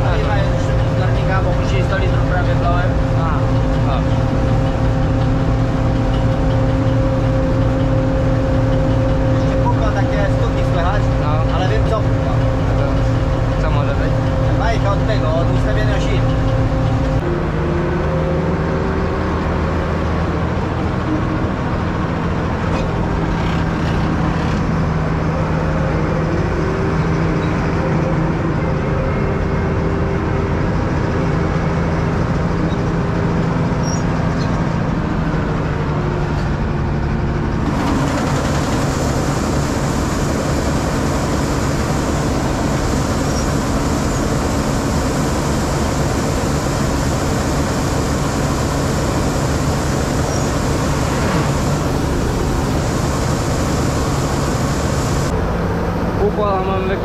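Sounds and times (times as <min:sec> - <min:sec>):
diesel engine running: 0:00.0 - 0:57.0
loud rushing hiss: 0:37.7 - 0:55.3.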